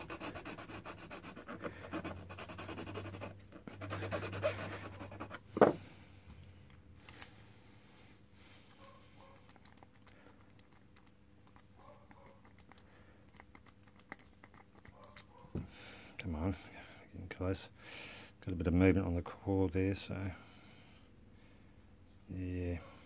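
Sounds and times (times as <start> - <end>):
file rasping on metal key: 0.0 - 5.5.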